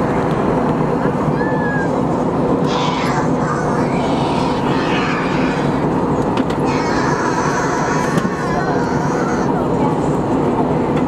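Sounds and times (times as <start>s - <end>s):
jet engines humming: 0.0s - 11.0s
airflow rushing past fuselage: 2.2s - 10.3s.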